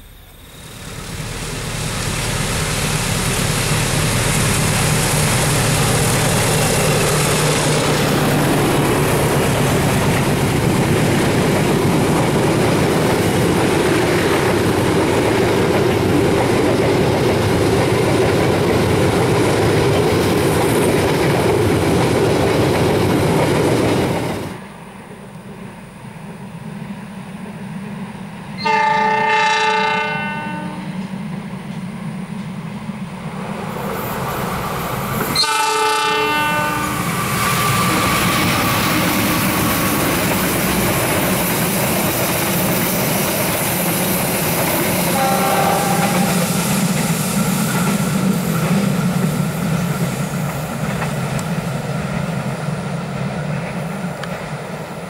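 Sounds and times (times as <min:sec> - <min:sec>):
train rumbling past: 0:00.0 - 0:55.0
locomotive air horn blasts: 0:28.6 - 0:31.0, 0:35.3 - 0:38.0, 0:45.0 - 0:46.6
wheels clattering on rails: 0:36.7 - 0:52.5.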